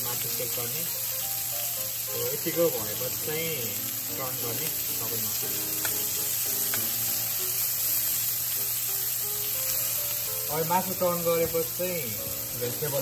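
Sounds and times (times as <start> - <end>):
meat sizzling in hot oil: 0.0 - 13.0
metal tongs clicking against pan: 5.8 - 6.0.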